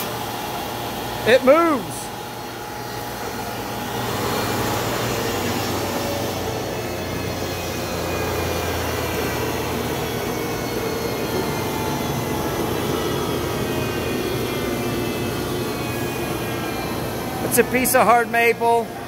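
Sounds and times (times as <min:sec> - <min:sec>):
thickness planer planing wood: 0:03.2 - 0:17.6.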